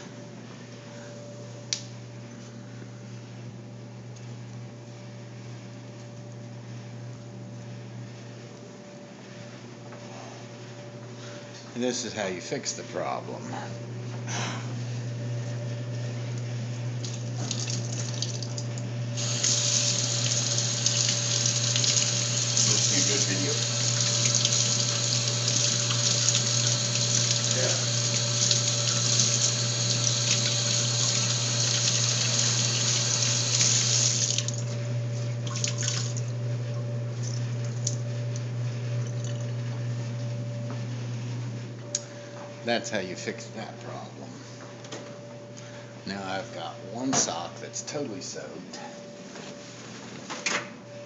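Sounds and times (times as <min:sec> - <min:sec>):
steady low hum: 0:00.0 - 0:51.0
tap water running onto sock: 0:19.3 - 0:23.1.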